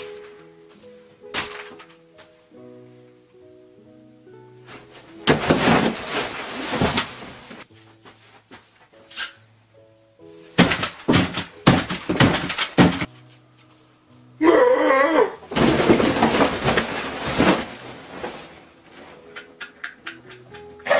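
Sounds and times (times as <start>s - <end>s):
light background music: 0.0s - 20.9s
heavy thuds and bangs: 5.2s - 7.6s, 10.6s - 13.1s, 15.5s - 18.0s
loud wavering cry: 14.4s - 15.4s.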